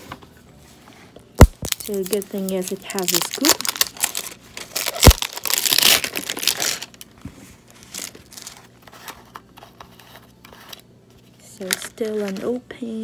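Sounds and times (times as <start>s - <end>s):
packaging crinkling: 1.4s - 9.7s.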